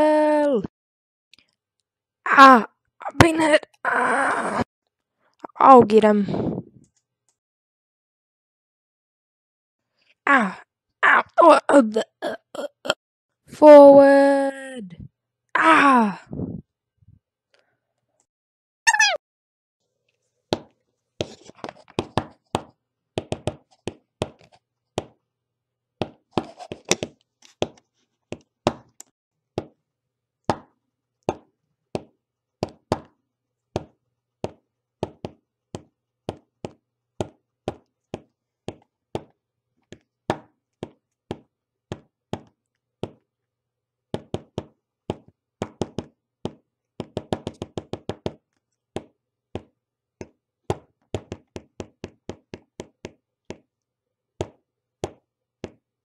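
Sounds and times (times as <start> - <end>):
sharp knocks and taps: 20.5 - 25.1, 33.8 - 43.2, 44.2 - 53.7, 54.4 - 55.8.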